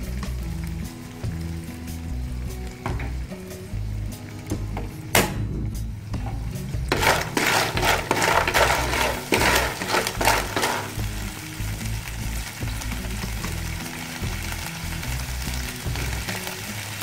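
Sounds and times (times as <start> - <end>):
shellfish sizzling in a frying pan: 0.0 - 17.0
scraping stirring strokes: 6.9 - 11.1.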